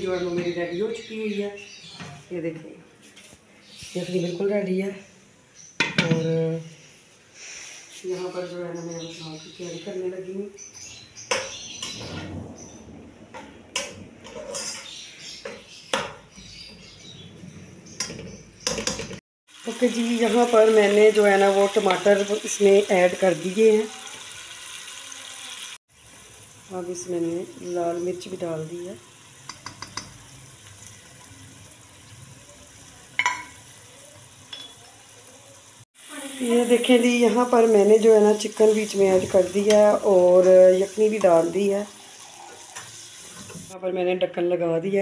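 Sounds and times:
metal spoon scraping a pot: 14.2s - 15.1s
vegetables sizzling in oil: 19.5s - 43.8s
spoon tapping: 29.5s - 30.2s.

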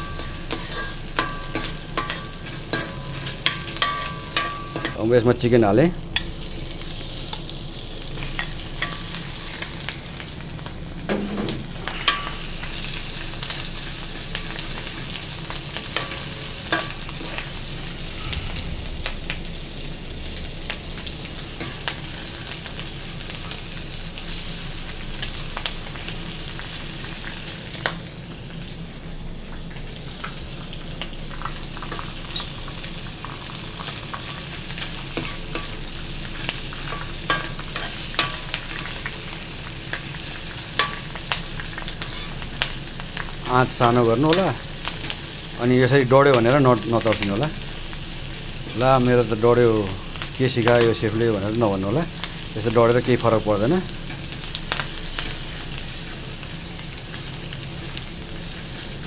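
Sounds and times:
metal spatula scraping pan: 0.0s - 5.0s
chicken sizzling in hot oil: 0.0s - 59.0s.

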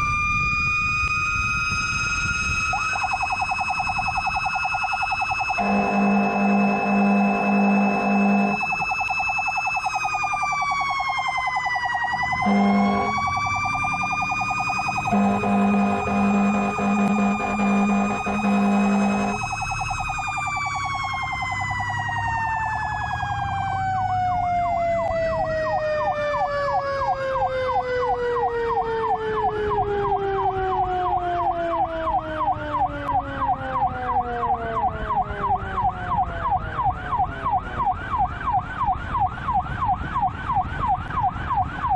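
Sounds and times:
electronic siren yelping: 0.0s - 41.9s
siren wailing: 0.0s - 41.9s
air horn blasts: 5.5s - 8.8s, 12.4s - 13.3s, 15.0s - 19.5s.

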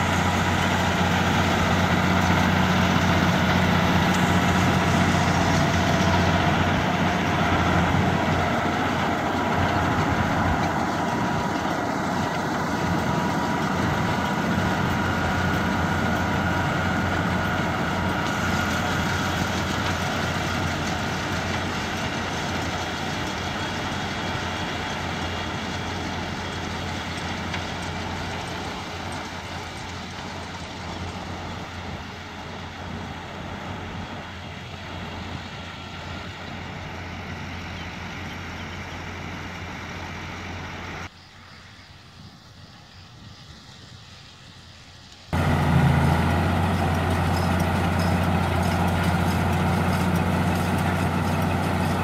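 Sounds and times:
tractor diesel engine under load: 0.0s - 41.1s, 45.3s - 52.0s.

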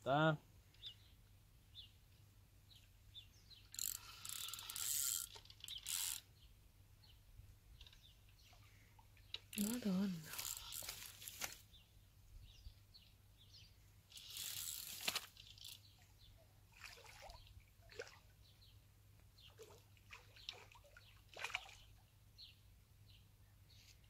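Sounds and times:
fish splashing in water: 16.7s - 18.3s, 19.6s - 21.9s.

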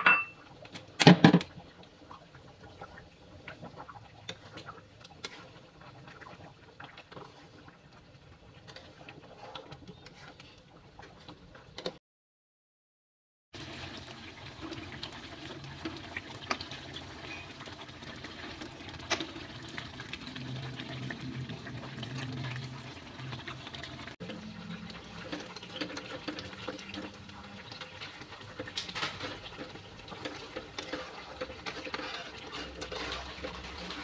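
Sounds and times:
curry bubbling and sputtering: 1.5s - 12.0s, 13.6s - 34.0s
spatula scraping a wok: 29.0s - 34.0s.

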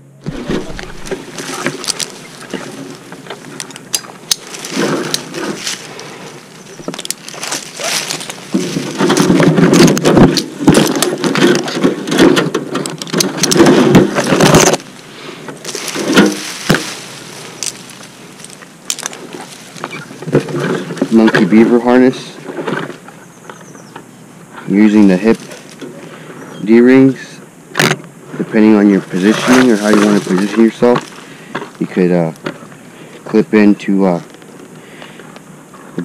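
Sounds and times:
leaves and twigs crackling: 0.2s - 36.0s
climbing gear clicks: 0.6s - 21.6s.

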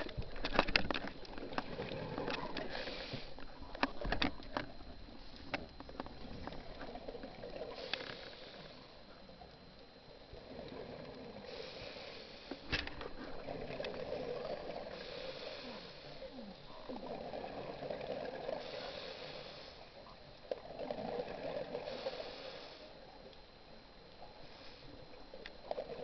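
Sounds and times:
regulator inhale hiss: 2.6s - 3.4s, 7.6s - 8.9s, 11.3s - 13.4s, 14.8s - 16.5s, 18.5s - 20.0s, 21.7s - 23.2s, 24.4s - 25.1s
exhaled bubbles rushing: 13.1s - 15.1s, 16.7s - 18.7s.

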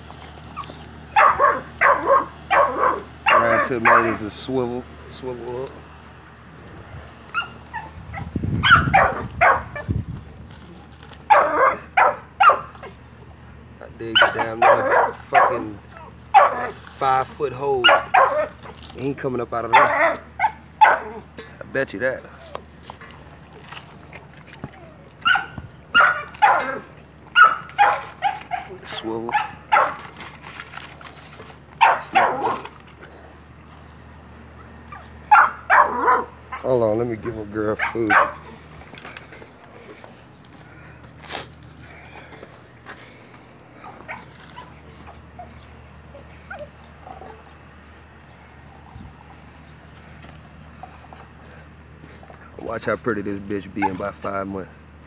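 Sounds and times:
dog barking sharply: 1.2s - 4.2s, 8.6s - 9.8s, 11.3s - 12.7s, 14.2s - 15.6s, 16.3s - 16.8s, 17.8s - 18.6s, 19.7s - 21.1s, 25.2s - 26.8s, 27.4s - 28.7s, 29.3s - 30.0s, 31.8s - 32.7s, 35.3s - 36.6s, 37.8s - 38.4s.

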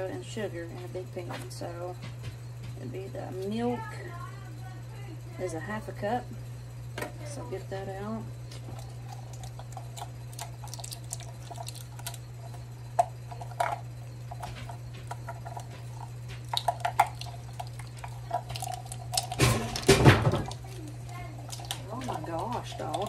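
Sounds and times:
steady low hum: 0.0s - 23.0s
utensils clicking and clinking: 8.5s - 23.0s
utensils clattering: 13.3s - 23.0s.

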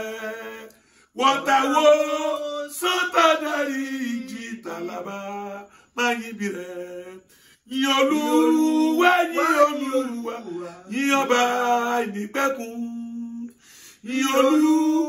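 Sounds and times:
man singing unaccompanied: 0.0s - 15.0s
man breathing: 0.7s - 1.2s, 5.7s - 6.0s, 7.2s - 7.7s, 13.5s - 14.1s.

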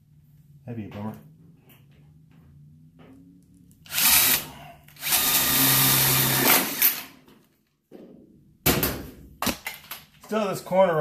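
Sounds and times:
cordless drill driving screw into metal: 3.9s - 7.1s.

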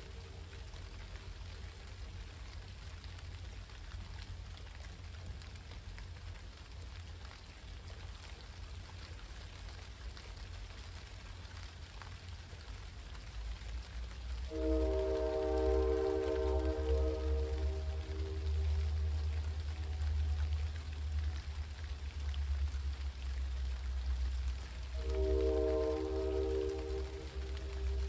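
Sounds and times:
rain on ground and leaves: 0.0s - 28.0s
low rumble: 13.6s - 28.0s
locomotive horn: 14.4s - 20.7s, 24.8s - 28.0s.

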